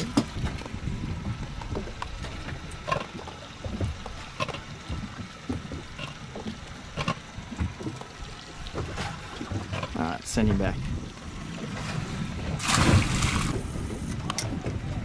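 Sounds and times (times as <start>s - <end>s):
water lapping against boat hull: 0.0s - 15.0s
short water splashes: 11.6s - 14.1s.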